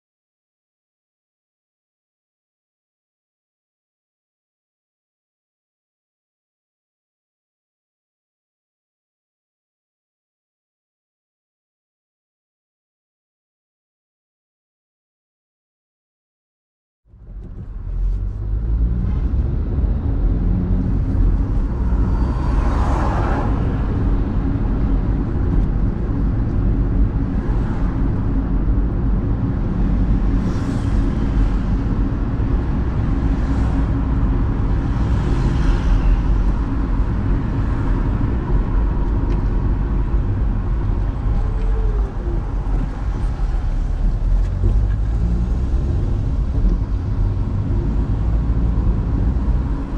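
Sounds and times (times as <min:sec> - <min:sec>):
passing traffic: 0:17.1 - 0:49.9
road and engine rumble: 0:17.1 - 0:49.9.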